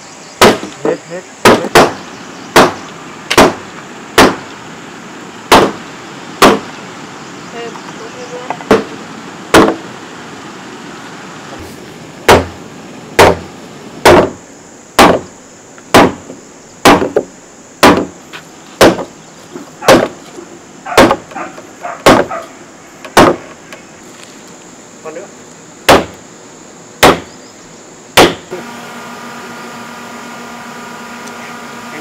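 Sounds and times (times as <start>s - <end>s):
hammer striking wooden block: 9.6s - 9.8s, 12.3s - 12.5s, 13.2s - 13.4s, 14.0s - 14.4s, 15.0s - 15.2s, 15.9s - 16.2s, 16.8s - 17.2s, 17.8s - 18.1s, 21.0s - 21.2s, 22.0s - 22.3s, 27.0s - 27.3s, 28.2s - 28.4s.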